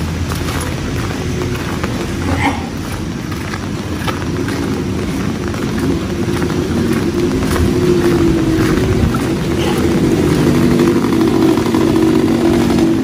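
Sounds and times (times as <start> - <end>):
steady rain: 0.0 - 13.0
vehicle engine running: 0.0 - 13.0.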